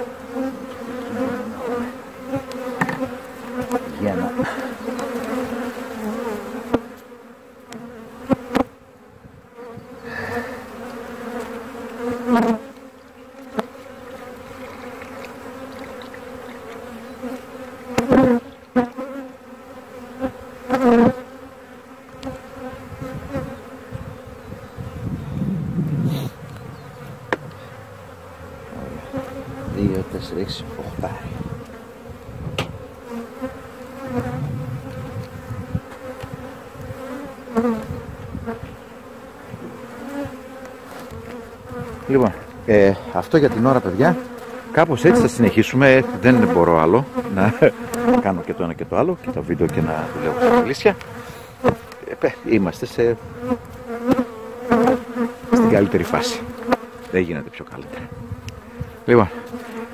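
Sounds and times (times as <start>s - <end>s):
bees buzzing: 0.0s - 59.9s
sharp knocks: 2.8s - 3.1s, 32.5s - 32.8s.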